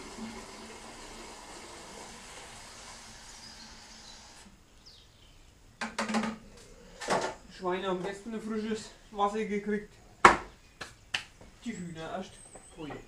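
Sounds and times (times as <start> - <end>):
tap water running into plastic: 0.0 - 4.5.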